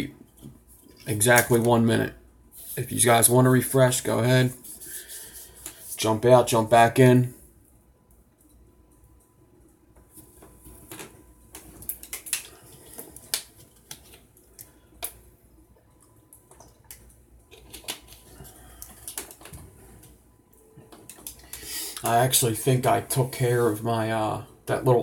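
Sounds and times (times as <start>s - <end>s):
small items clicking and tapping: 10.9s - 15.2s, 15.9s - 19.6s.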